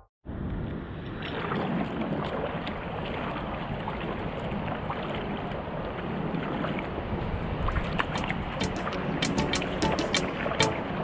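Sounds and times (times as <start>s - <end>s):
wind noise on microphone: 0.3s - 11.0s
water splashing against hull: 0.6s - 11.0s.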